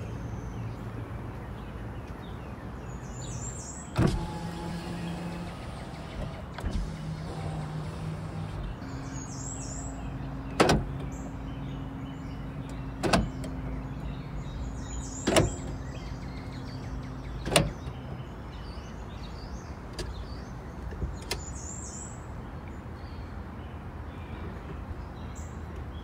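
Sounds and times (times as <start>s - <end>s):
car door locks clunking: 3.9s - 9.2s, 10.2s - 11.2s, 12.6s - 13.7s, 15.2s - 15.9s, 17.4s - 18.1s, 20.8s - 21.6s.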